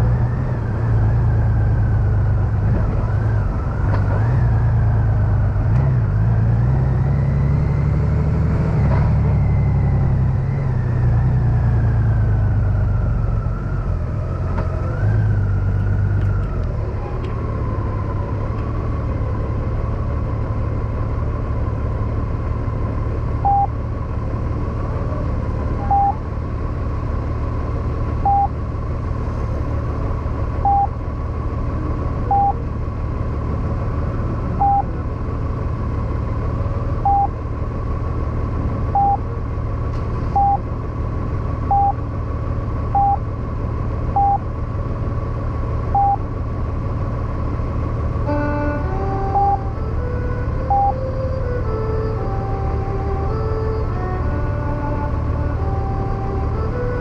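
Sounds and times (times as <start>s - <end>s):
short electronic beeps: 23.4s - 23.7s, 25.8s - 26.2s, 28.2s - 28.6s, 30.6s - 30.9s, 32.3s - 32.6s, 34.6s - 34.9s, 37.0s - 37.3s, 39.0s - 39.2s, 40.4s - 40.6s, 41.7s - 42.0s, 43.0s - 43.2s, 44.2s - 44.4s, 46.0s - 46.2s, 49.4s - 49.6s, 50.7s - 51.0s.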